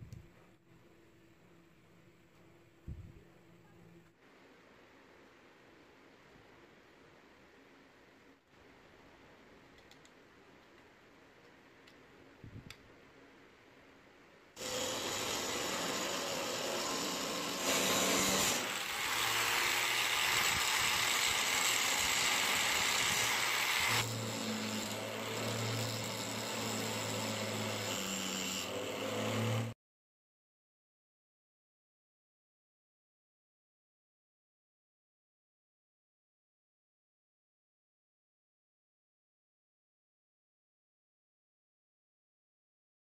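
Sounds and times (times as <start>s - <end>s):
grinder disc grinding metal: 14.6s - 29.7s
angle grinder running: 14.6s - 29.8s.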